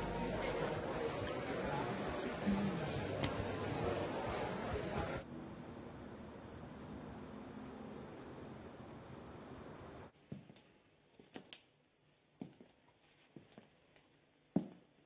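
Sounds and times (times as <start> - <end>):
crickets chirping: 5.2 - 10.1.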